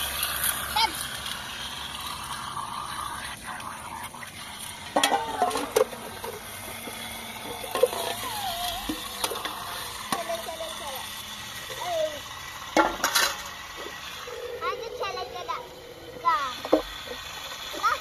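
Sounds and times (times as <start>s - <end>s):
metal tray and pot clinking: 5.0s - 6.0s, 12.8s - 13.6s.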